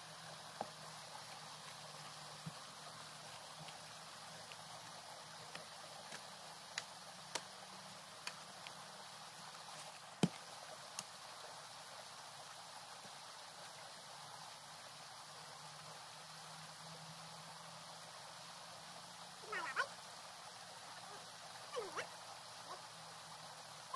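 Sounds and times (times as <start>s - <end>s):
faint outdoor hiss: 0.0s - 23.9s.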